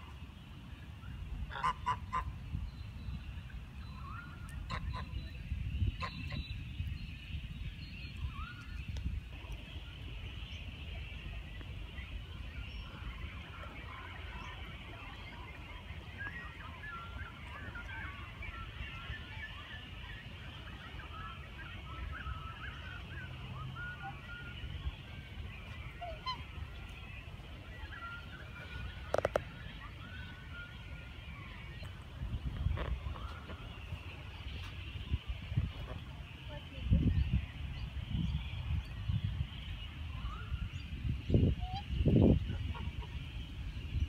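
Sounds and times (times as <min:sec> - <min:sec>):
geese and swans honking: 0:01.5 - 0:02.3, 0:12.2 - 0:36.1, 0:41.5 - 0:43.6.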